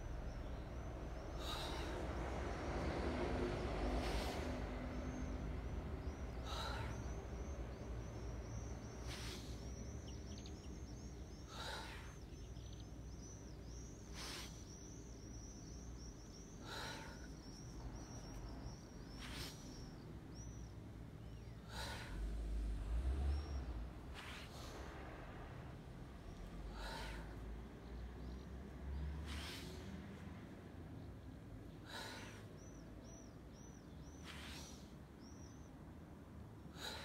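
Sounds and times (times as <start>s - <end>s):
low steady background rumble: 0.0s - 37.0s
faint high rapid chirping: 4.0s - 22.1s
person breathing sharply: 6.0s - 7.6s, 10.9s - 12.7s, 21.6s - 22.4s, 26.6s - 27.4s.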